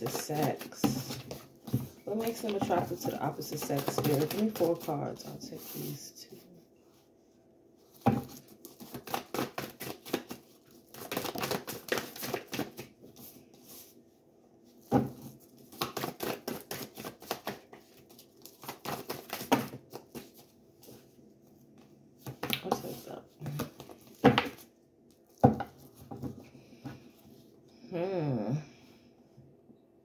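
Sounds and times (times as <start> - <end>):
cards being shuffled: 0.0 - 6.0, 8.2 - 13.8, 15.6 - 21.0.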